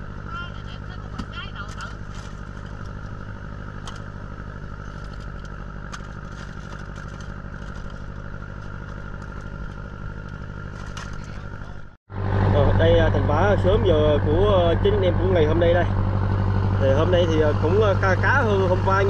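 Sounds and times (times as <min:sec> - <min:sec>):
boat engine running: 0:00.0 - 0:19.0
light clicks and clatter: 0:04.8 - 0:11.4.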